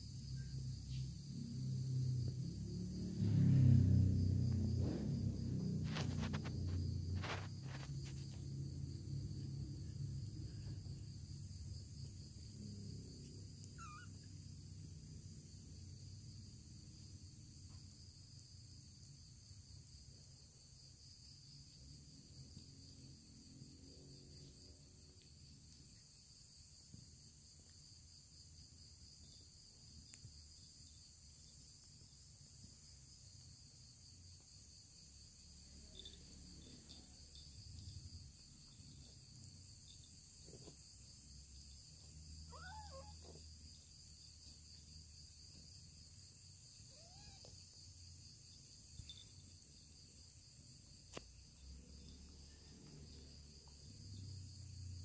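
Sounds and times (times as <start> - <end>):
crickets chirring: 0.0 - 55.0
kittens mewing: 13.7 - 14.3, 42.4 - 43.4, 46.9 - 47.8.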